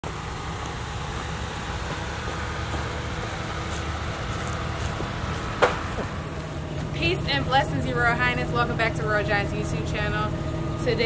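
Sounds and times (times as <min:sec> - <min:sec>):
pickup truck engine idling: 0:00.0 - 0:11.0.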